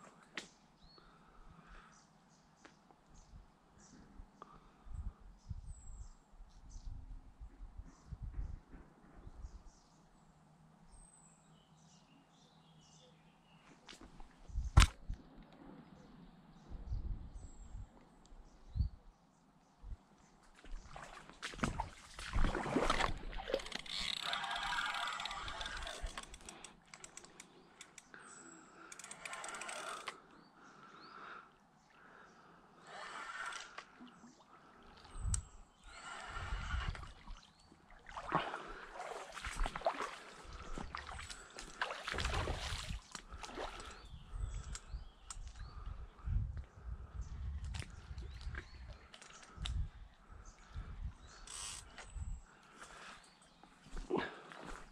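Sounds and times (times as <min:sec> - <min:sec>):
fish thrashing and splashing: 0:21.0 - 0:27.1
fishing reel clicking and rasping: 0:23.6 - 0:28.1, 0:28.9 - 0:30.2, 0:51.4 - 0:51.9.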